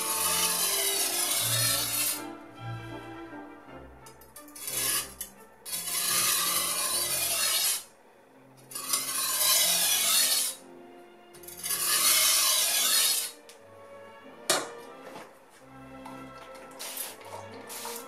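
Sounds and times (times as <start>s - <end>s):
knife scraping on whetstone: 0.0s - 2.2s, 4.5s - 7.9s, 8.7s - 10.6s, 11.4s - 13.4s, 16.8s - 18.0s.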